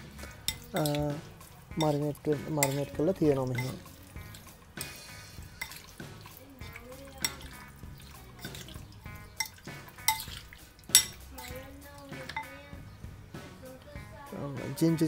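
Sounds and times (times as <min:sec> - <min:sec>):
wet squelching of meat: 0:00.2 - 0:12.5
fork clinking against bowl: 0:00.4 - 0:05.0, 0:05.6 - 0:12.6.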